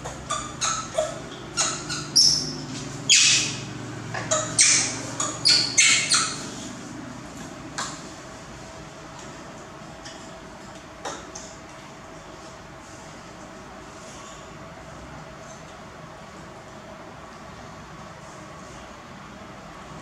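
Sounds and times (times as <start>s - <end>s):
high-pitched animal squeaks: 0.0s - 6.6s.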